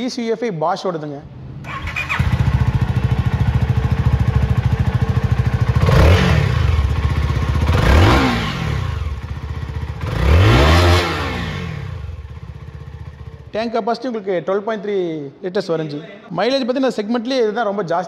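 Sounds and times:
motorcycle engine idling and revving: 0:01.3 - 0:13.6.

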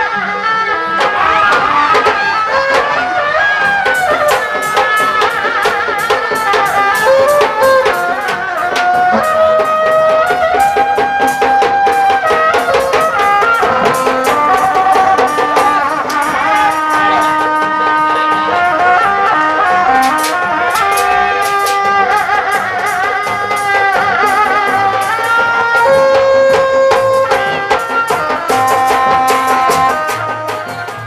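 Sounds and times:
wind instrument melody: 0:00.0 - 0:31.0
quick steady drum strokes: 0:00.8 - 0:31.0.

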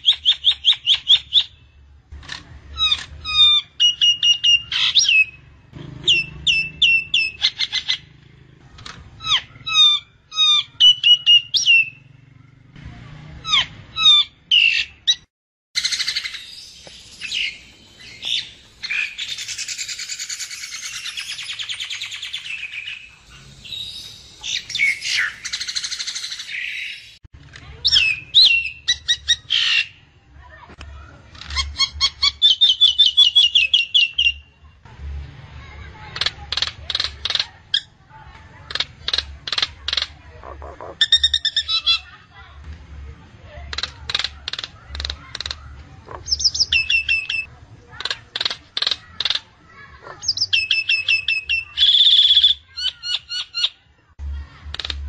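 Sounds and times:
bird rasping chatter: 0:02.2 - 0:12.6, 0:13.4 - 0:30.0, 0:36.0 - 0:42.2, 0:43.6 - 0:53.8.

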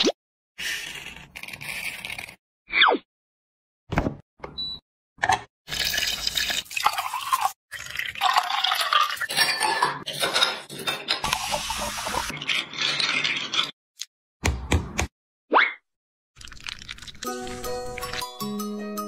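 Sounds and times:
ice cubes clinking into glass: 0:05.7 - 0:13.7
juice dripping: 0:16.4 - 0:18.4
lemon crushed in hand juicer: 0:16.4 - 0:18.4.

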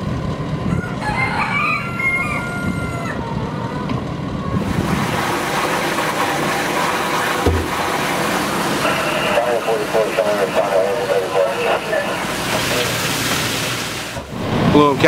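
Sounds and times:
vehicle rumbling on dirt road: 0:00.0 - 0:15.0
rooster crowing: 0:00.6 - 0:03.8
water gushing from hose into tank: 0:04.6 - 0:14.2.

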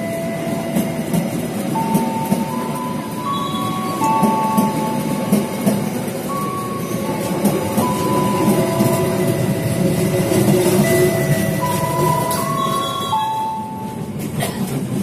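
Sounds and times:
train wheels rumbling on rails: 0:00.0 - 0:15.0
wheel squeals: 0:03.2 - 0:04.5, 0:10.8 - 0:13.6.

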